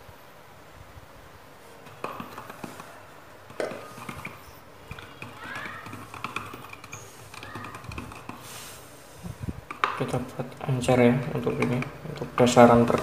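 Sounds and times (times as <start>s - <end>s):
stick stirring paint in plastic bottle: 1.8s - 13.0s
knocks and clicks of tools: 3.5s - 8.5s, 9.6s - 10.2s, 11.4s - 13.0s.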